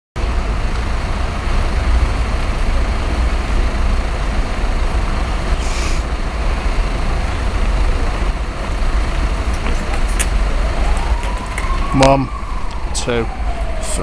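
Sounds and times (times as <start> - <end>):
road traffic rumble: 0.2 - 14.0
short hiss: 5.6 - 6.1.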